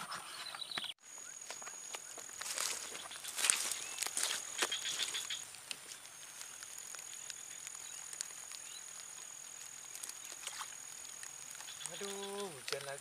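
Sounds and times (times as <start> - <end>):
faint ticks: 4.7 - 13.0.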